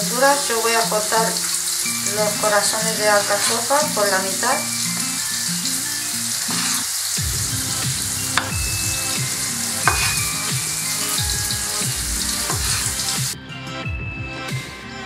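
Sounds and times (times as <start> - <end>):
vegetables sizzling in a pan: 0.0 - 13.4
knife knocking on cutting board: 9.8 - 10.3.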